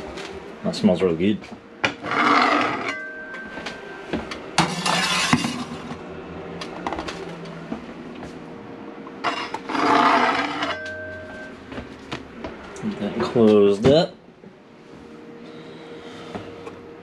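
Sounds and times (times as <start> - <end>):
dishes clinking: 4.6 - 5.9
clattering and rustling: 4.6 - 6.0.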